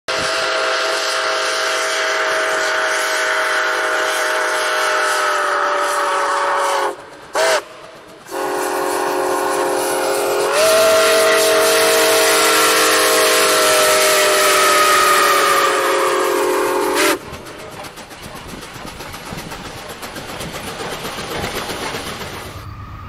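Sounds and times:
steam locomotive chime whistle: 0.1 - 17.2, 22.4 - 23.0
hiss of steam: 0.1 - 22.8.

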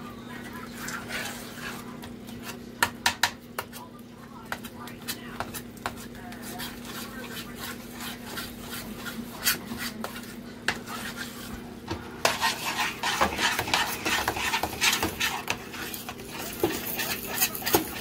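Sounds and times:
wooden spoon turning meat in a pan: 0.4 - 18.0
metal utensil scraping a saucepan: 12.2 - 18.0.

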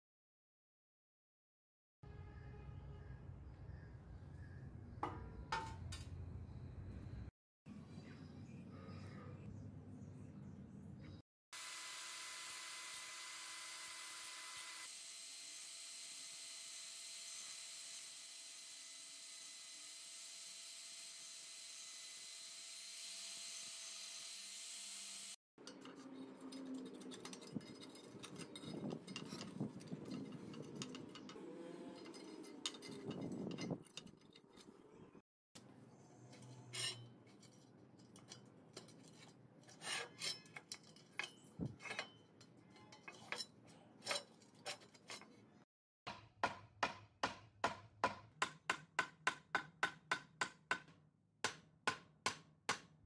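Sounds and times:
fingers scraping rusted metal: 25.6 - 35.1, 36.3 - 45.6.

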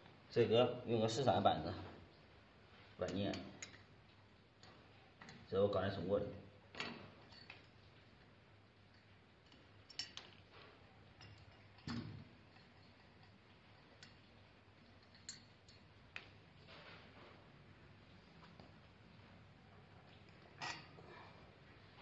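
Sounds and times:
metal parts clicking and clinking: 6.7 - 7.9, 8.9 - 17.0, 20.3 - 21.1.

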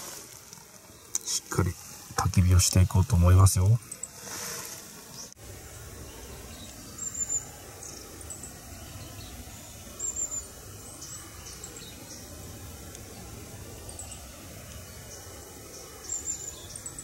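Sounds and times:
small bird chirping: 5.1 - 17.0.

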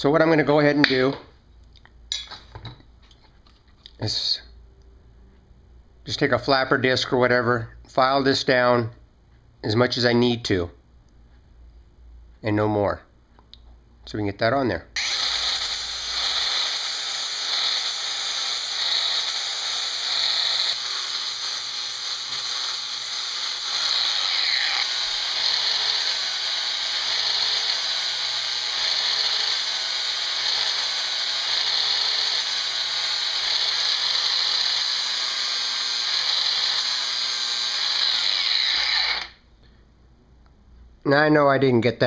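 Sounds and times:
angle grinder grinding metal: 15.0 - 39.4.

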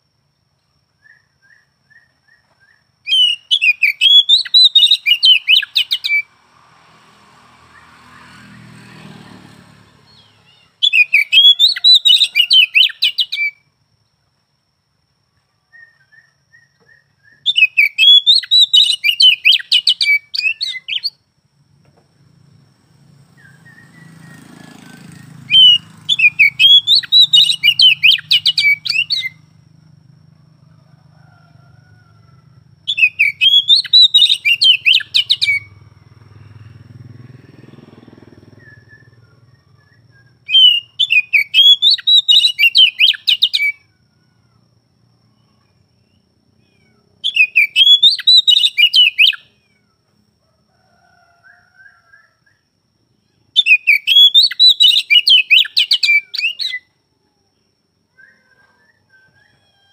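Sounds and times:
bird singing rapid varied notes: 1.0 - 6.3, 9.9 - 13.6, 15.8 - 21.2, 23.3 - 29.6, 32.9 - 43.8, 45.4 - 49.6, 53.2 - 56.8.

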